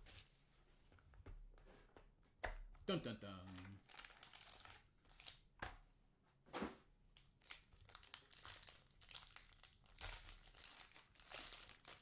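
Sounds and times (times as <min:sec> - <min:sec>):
foil wrapper crinkling and tearing: 0:03.8 - 0:05.4, 0:07.4 - 0:12.0.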